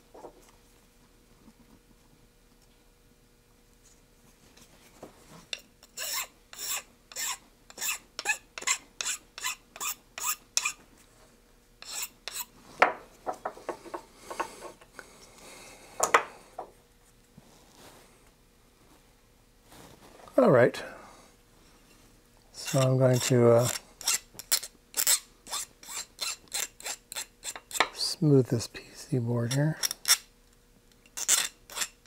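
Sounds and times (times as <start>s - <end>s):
hand file rasping: 5.8s - 10.8s, 11.8s - 12.5s, 22.6s - 27.9s, 31.2s - 32.0s.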